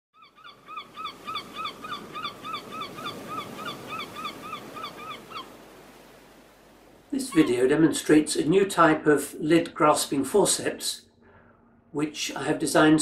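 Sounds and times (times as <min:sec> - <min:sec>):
bird honk-like calls: 0:00.2 - 0:05.6, 0:07.3 - 0:07.7.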